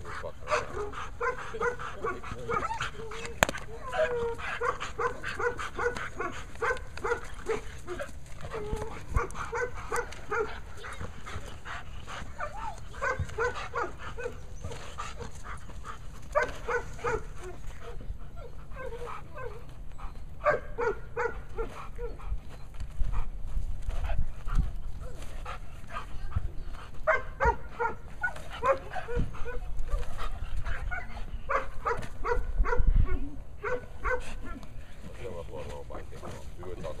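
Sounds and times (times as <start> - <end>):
dog barking hard: 4.6 - 7.7, 9.2 - 11.0, 12.4 - 14.4, 16.4 - 17.3, 20.4 - 21.7, 27.1 - 29.6, 30.9 - 32.9, 33.6 - 34.4.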